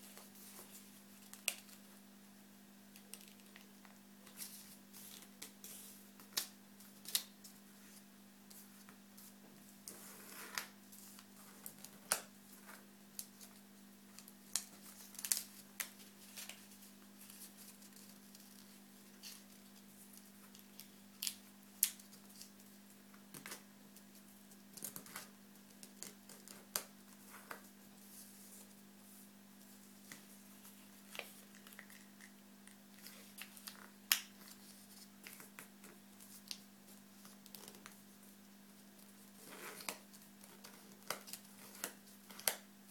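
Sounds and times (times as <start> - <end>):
paper being folded and creased: 32.9 - 38.0.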